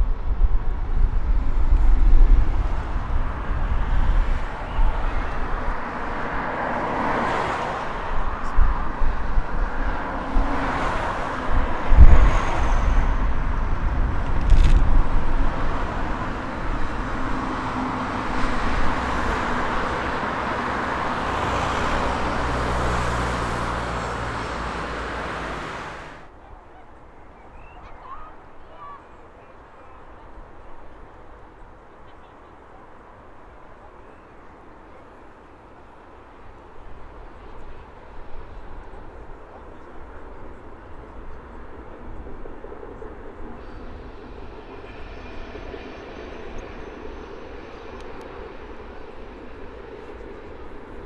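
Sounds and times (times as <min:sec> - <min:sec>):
wind rumbling on microphone: 0:00.0 - 0:26.6
road traffic passing: 0:00.0 - 0:51.0
train crossing rail bridge: 0:00.0 - 0:51.0.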